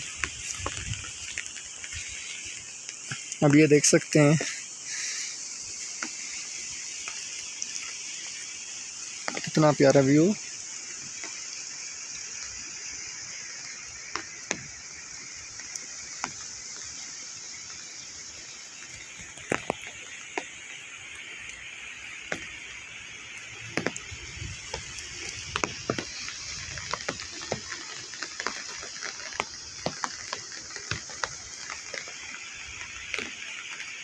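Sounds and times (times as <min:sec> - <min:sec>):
rain hissing: 0:00.0 - 0:34.0
raindrops ticking on umbrella: 0:00.0 - 0:34.0.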